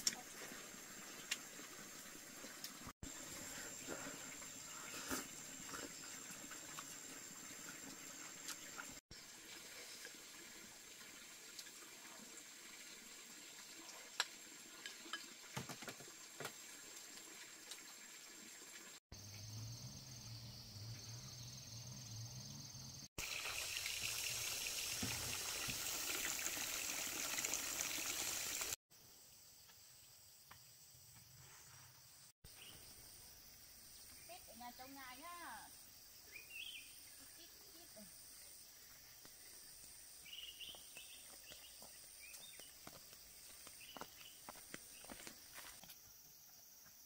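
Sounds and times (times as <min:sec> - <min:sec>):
water trickling and splashing: 0:00.0 - 0:19.0, 0:23.2 - 0:28.8
water rushing: 0:23.2 - 0:28.8.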